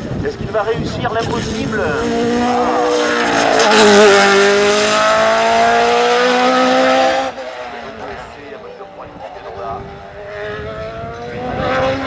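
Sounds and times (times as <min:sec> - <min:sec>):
race car engine accelerating: 0:01.2 - 0:08.4, 0:09.8 - 0:12.0.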